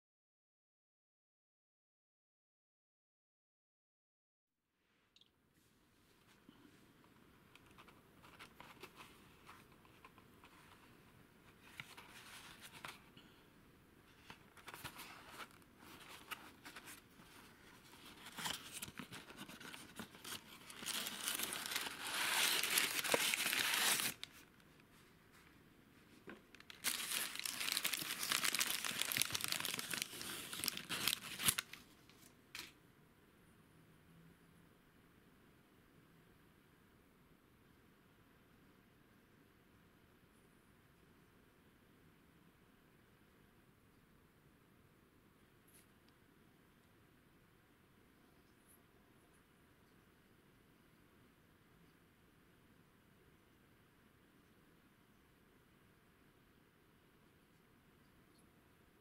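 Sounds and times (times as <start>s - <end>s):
paper crinkling: 14.1s - 25.5s, 26.2s - 32.8s.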